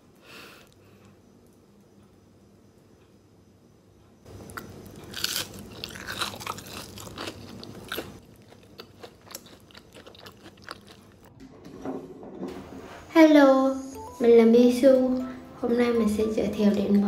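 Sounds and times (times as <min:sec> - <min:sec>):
crunchy biting and chewing: 0:04.3 - 0:11.3.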